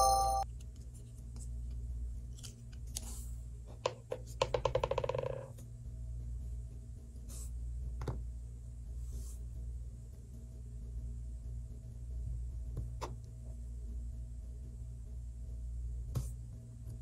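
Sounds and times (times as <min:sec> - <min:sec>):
steady low hum: 0:05.5 - 0:17.0.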